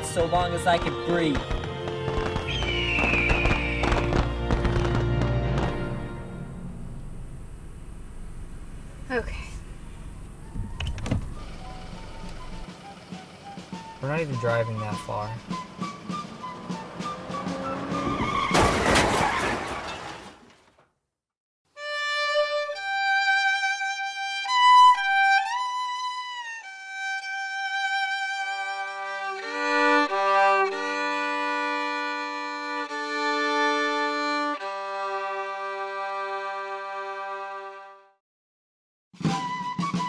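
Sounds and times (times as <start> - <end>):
low sustained string notes: 5.1 - 10.4, 27.0 - 37.9
solo violin slow melody: 21.7 - 38.2.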